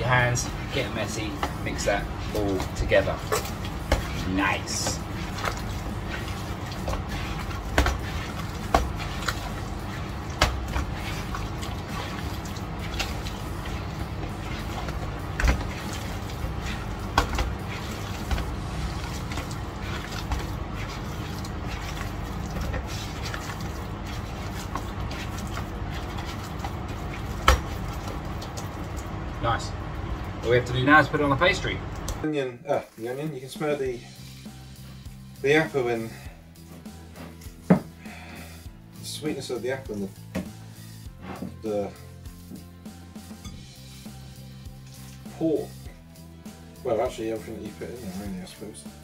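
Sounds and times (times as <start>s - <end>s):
steady low hum: 0.0s - 32.2s
wet squelching of meat: 0.6s - 29.2s.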